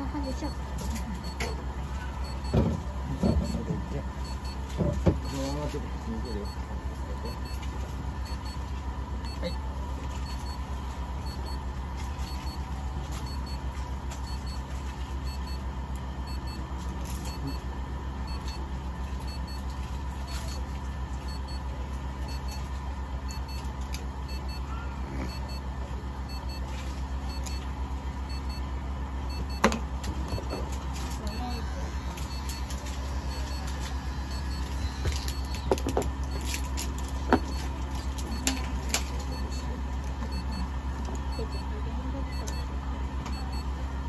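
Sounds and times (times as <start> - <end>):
electrical hum: 0.0 - 44.0
faint high beep: 1.2 - 4.6, 5.2 - 6.6, 9.2 - 9.6, 17.2 - 17.6, 20.3 - 20.6, 31.2 - 35.8, 37.5 - 38.7, 41.3 - 42.7.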